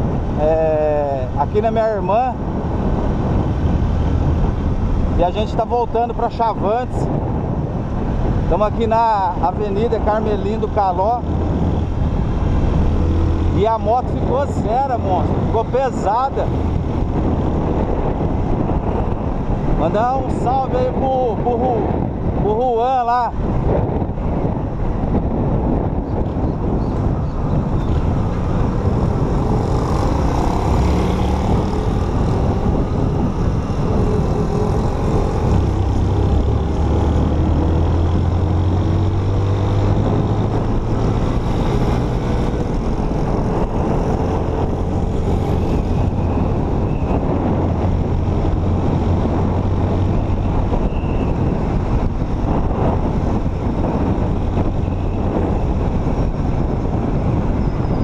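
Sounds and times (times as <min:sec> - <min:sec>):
motorcycle engine accelerating: 0:11.2 - 0:14.3, 0:27.6 - 0:50.6.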